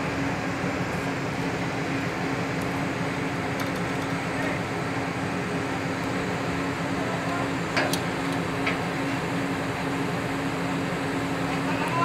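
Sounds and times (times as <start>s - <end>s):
crane diesel engine running: 0.0s - 12.0s.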